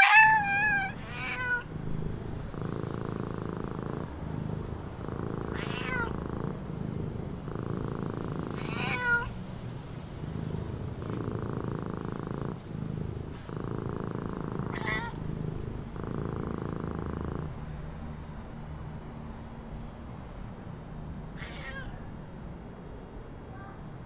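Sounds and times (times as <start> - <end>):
cat purring: 0.0 - 19.1.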